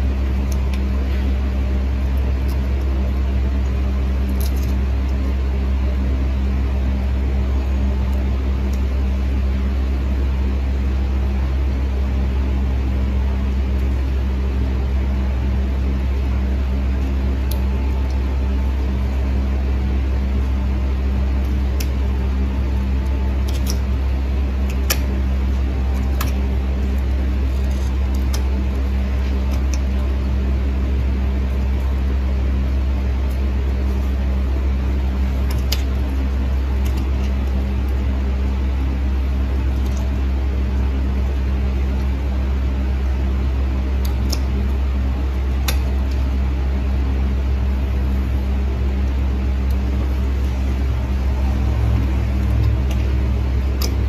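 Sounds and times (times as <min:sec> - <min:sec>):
low motor hum: 0:00.0 - 0:54.0
nail nippers clicking: 0:23.4 - 0:23.8.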